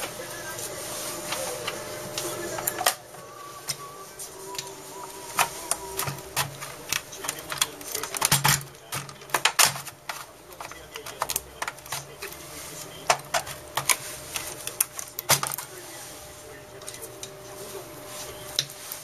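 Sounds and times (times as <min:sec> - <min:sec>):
plastic clicks taps and rattles: 0:05.4 - 0:12.2.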